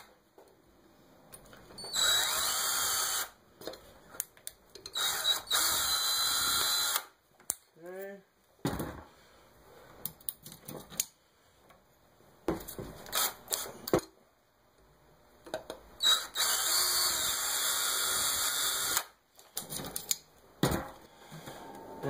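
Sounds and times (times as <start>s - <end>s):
power drill drilling metal: 1.9s - 3.4s, 4.9s - 7.1s, 16.0s - 19.1s.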